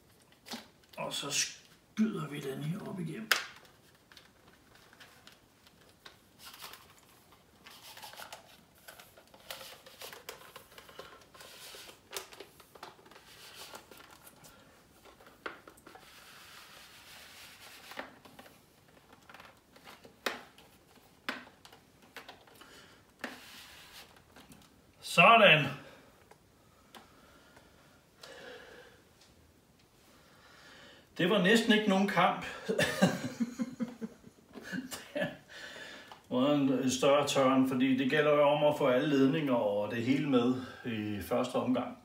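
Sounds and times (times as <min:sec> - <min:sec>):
plastic cover scraping on wall: 0:03.4 - 0:24.6.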